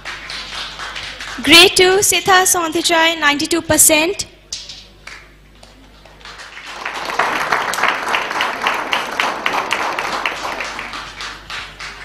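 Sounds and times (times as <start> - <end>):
audience applause: 0.0 - 1.5, 5.6 - 12.0.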